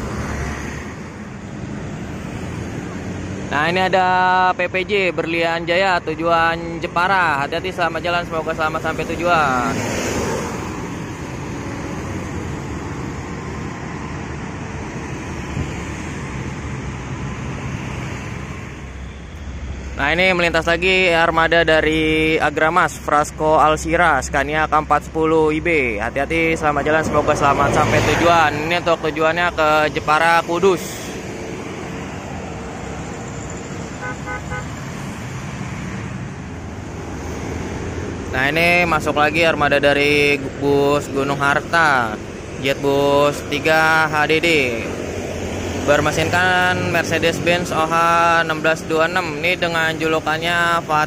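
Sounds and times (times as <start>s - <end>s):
road traffic: 0.0s - 51.0s
vehicle horn toots: 33.9s - 34.8s.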